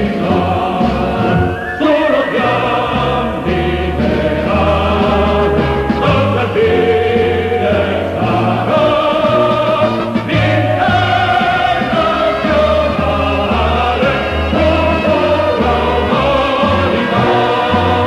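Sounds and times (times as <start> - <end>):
choir singing held chords: 0.0 - 18.0
sustained bass: 0.0 - 18.0.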